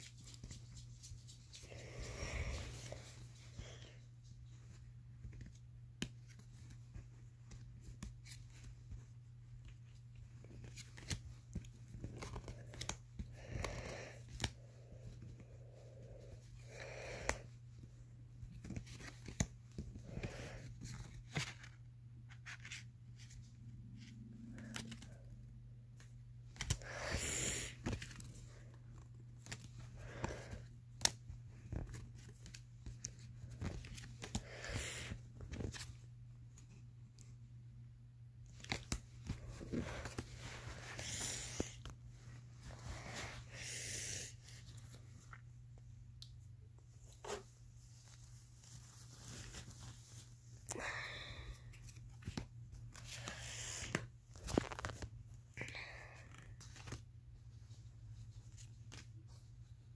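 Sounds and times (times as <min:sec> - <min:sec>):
trading cards being flipped: 0:10.4 - 0:14.6, 0:18.6 - 0:23.3, 0:51.6 - 0:55.2.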